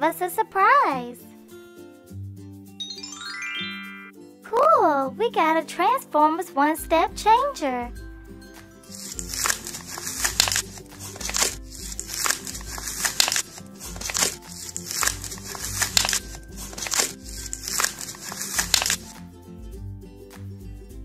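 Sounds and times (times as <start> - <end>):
background music: 0.0 - 21.0
plastic packaging crinkling: 8.9 - 19.1.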